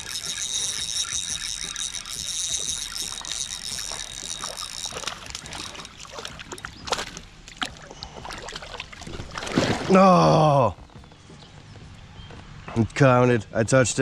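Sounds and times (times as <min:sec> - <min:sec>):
water trickling and sloshing: 0:00.0 - 0:10.2.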